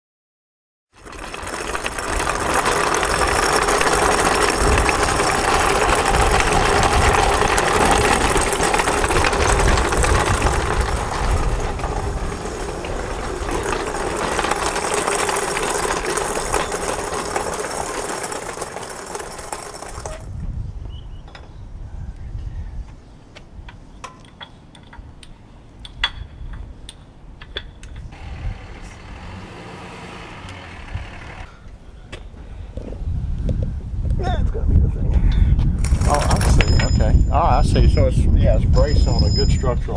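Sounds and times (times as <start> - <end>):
machine running loudly: 1.0 - 20.3.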